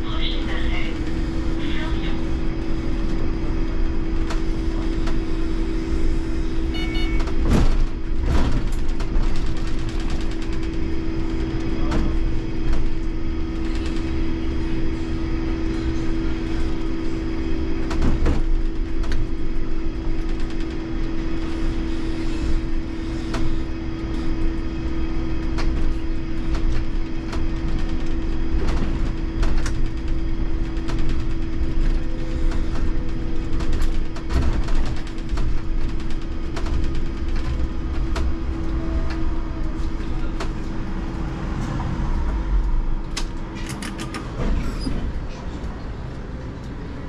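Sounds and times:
knocks and rattles: 7.2s - 14.1s, 25.4s - 38.4s
road and body noise: 22.0s - 47.0s.

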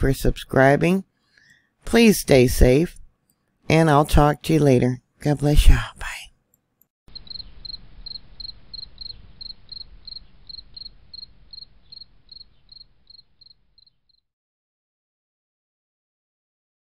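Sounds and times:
insects chirping: 7.1s - 14.2s.

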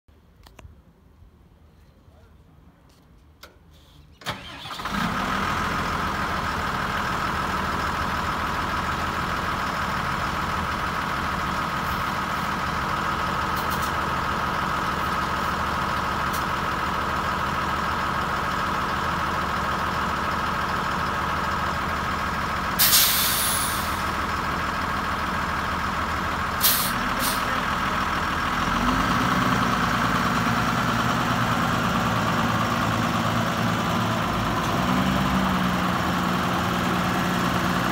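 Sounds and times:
air brake hiss: 3.7s - 4.2s, 22.8s - 24.1s, 26.6s - 27.5s
diesel engine running: 4.2s - 37.9s.

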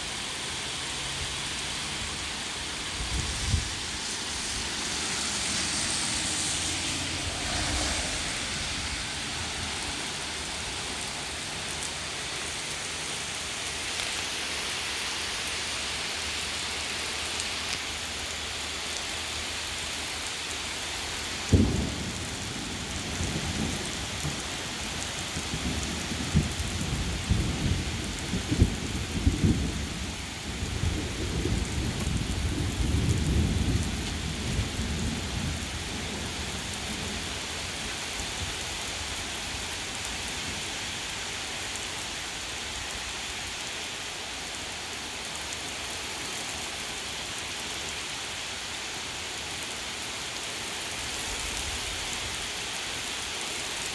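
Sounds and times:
heavy rain on pavement: 0.0s - 53.9s
rolling thunder rumbling: 2.8s - 11.4s, 21.5s - 37.2s
thunder clap: 3.6s - 11.0s, 21.5s - 24.5s.

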